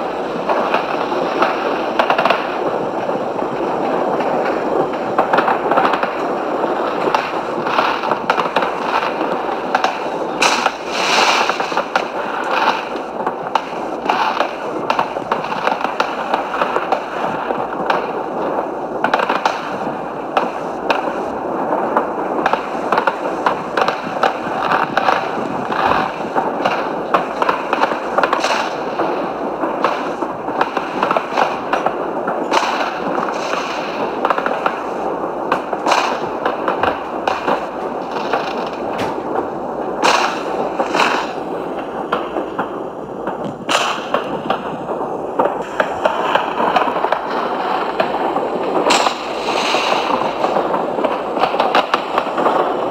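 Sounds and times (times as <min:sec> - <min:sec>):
fireworks popping and crackling: 0:00.0 - 0:52.9.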